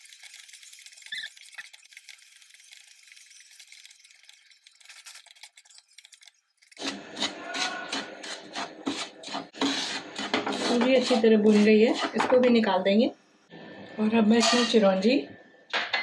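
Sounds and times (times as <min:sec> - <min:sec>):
spatula rasping against pan: 0:06.8 - 0:12.4
wooden spatula scraping a pan: 0:06.8 - 0:12.6.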